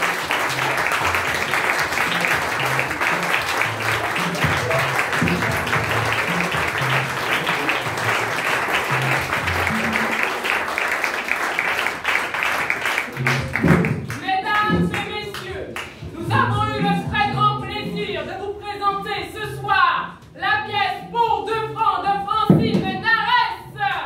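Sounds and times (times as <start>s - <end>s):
music with stepping bass line: 0.0s - 10.2s, 13.1s - 18.3s
crowd applause: 0.0s - 16.0s.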